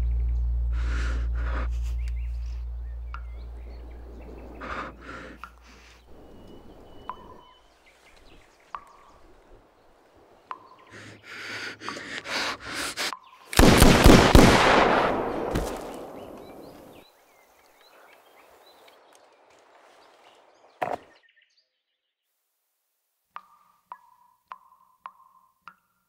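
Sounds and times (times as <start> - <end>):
loud gunshot: 13.6 - 16.9.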